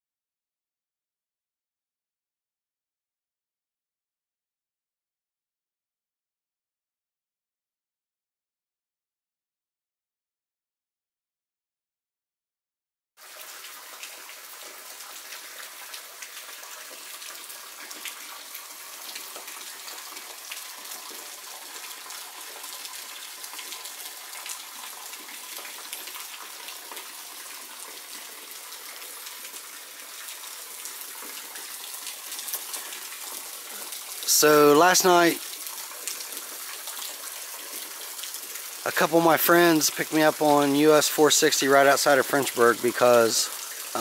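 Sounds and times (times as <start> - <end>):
rain dripping from rock overhang: 13.2 - 44.0
rain in woods: 13.2 - 44.0.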